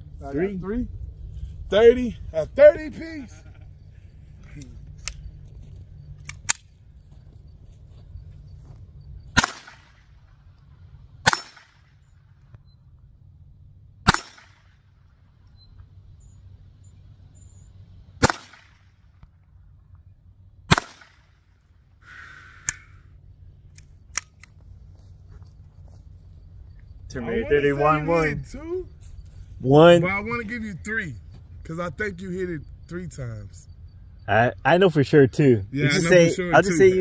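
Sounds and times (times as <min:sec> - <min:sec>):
gunshots with short echo: 0:09.3 - 0:10.1, 0:11.2 - 0:11.9, 0:14.0 - 0:14.8, 0:18.2 - 0:18.9, 0:20.7 - 0:21.4.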